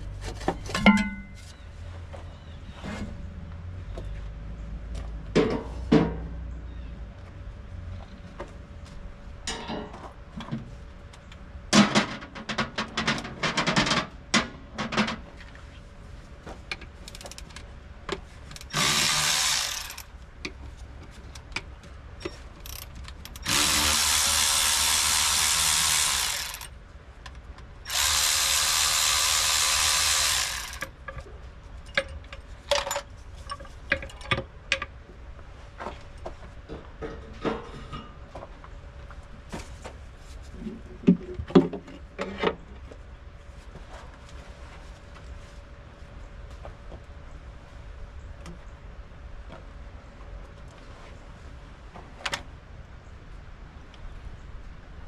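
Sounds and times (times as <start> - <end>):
power ratchet spinning bolts: 18.5 - 20.1, 22.6 - 26.7, 27.9 - 30.9.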